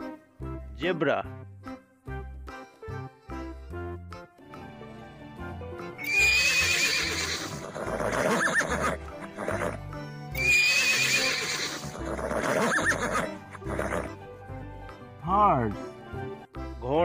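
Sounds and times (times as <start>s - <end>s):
background music: 0.0s - 17.0s
horse whinnying: 6.0s - 14.2s.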